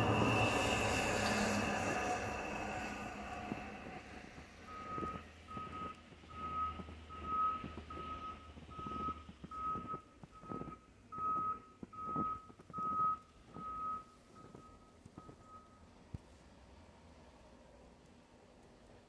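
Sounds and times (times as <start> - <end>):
reversing alarm beeping: 0.0 - 15.9
low engine rumble: 0.0 - 19.0
footsteps crunching in snow: 3.3 - 13.7.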